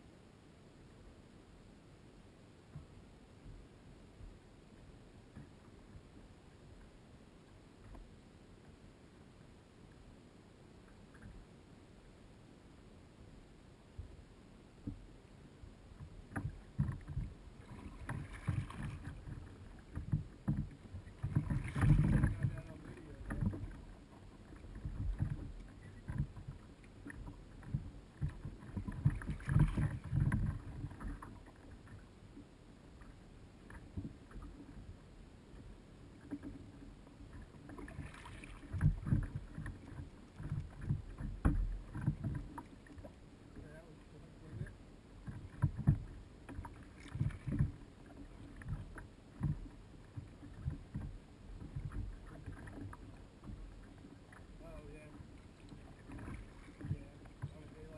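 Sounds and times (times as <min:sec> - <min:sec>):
paddle knocking against kayak: 0:16.0 - 0:32.0, 0:35.6 - 0:57.9
kayak paddle splashing water: 0:16.0 - 0:32.1, 0:36.1 - 0:57.9
water rushing: 0:20.9 - 0:26.2, 0:53.6 - 0:57.9.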